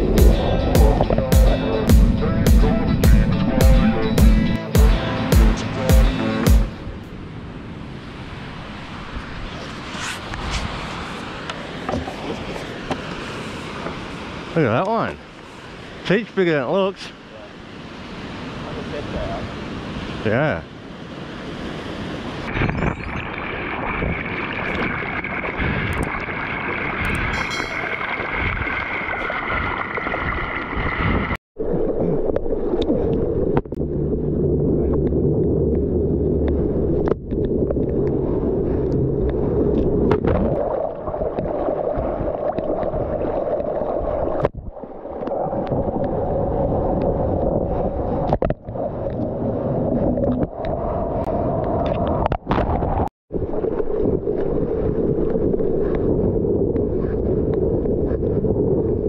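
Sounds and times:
water rushing and splashing: 3.2s - 56.4s
wind buffeting microphone: 17.8s - 59.0s.

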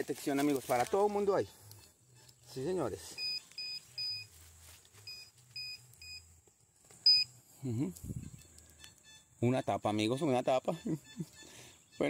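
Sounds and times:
metal detector beeping: 0.7s - 4.3s, 5.0s - 6.3s, 7.0s - 7.3s, 8.2s - 12.0s.

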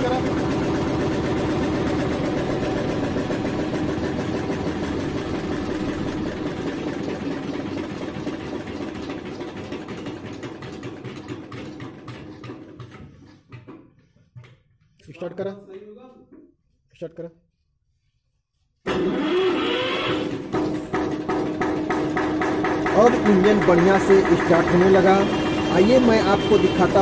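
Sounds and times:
diesel engine chugging: 0.0s - 11.3s, 19.6s - 27.0s.

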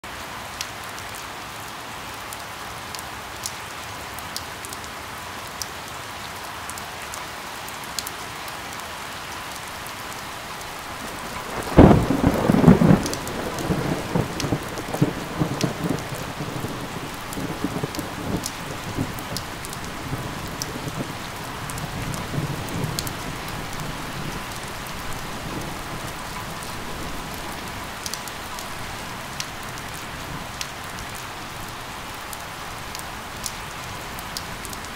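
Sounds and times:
steady rain: 0.0s - 34.9s
raindrops ticking: 9.5s - 34.9s
thunder clap and rumbling: 10.7s - 29.0s.

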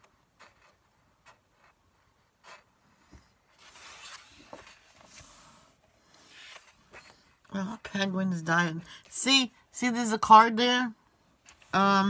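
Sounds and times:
paper rustling: 3.5s - 7.3s.

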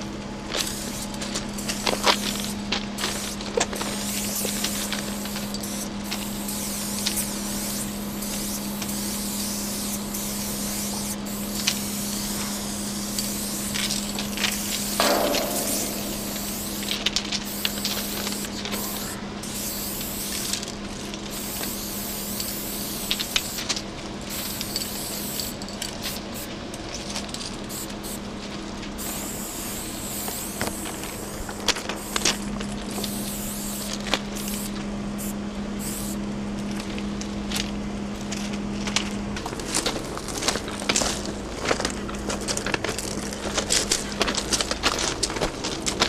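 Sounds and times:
spray paint can hissing: 0.5s - 26.5s, 27.7s - 28.2s, 29.0s - 36.2s
low hum: 1.2s - 19.0s.

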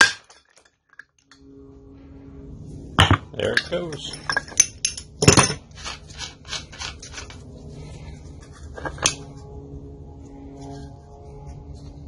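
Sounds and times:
metal tools clinking: 3.0s - 7.4s.

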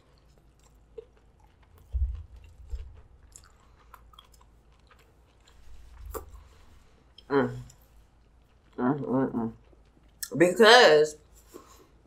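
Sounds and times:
chewing crunchy food: 0.0s - 10.4s
low thumps: 1.8s - 3.2s
wet mouth clicks: 6.0s - 6.4s.

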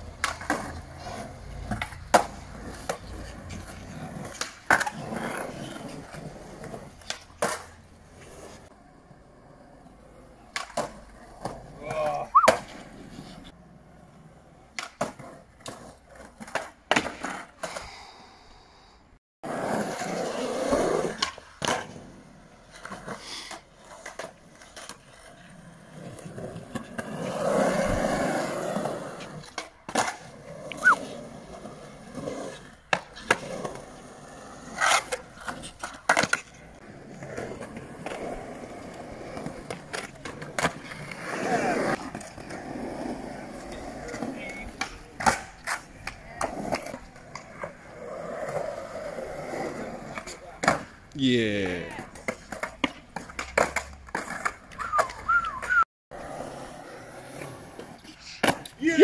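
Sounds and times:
skateboard clacks: 0.0s - 8.4s, 10.2s - 13.5s, 14.6s - 17.9s, 19.7s - 51.0s, 51.9s - 58.8s
skateboard wheels rolling on concrete: 0.0s - 59.0s.

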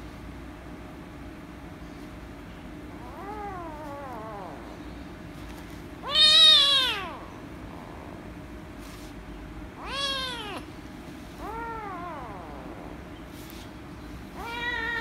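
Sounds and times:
kitten meowing: 6.0s - 7.2s, 9.8s - 10.7s, 14.4s - 15.0s.

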